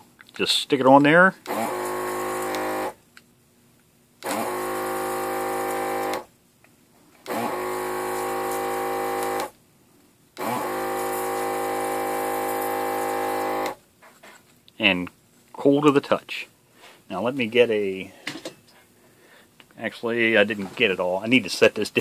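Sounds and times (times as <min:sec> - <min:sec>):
desoldering vacuum pump running: 0:01.4 - 0:03.0, 0:04.2 - 0:06.3, 0:07.2 - 0:09.6, 0:10.4 - 0:13.8.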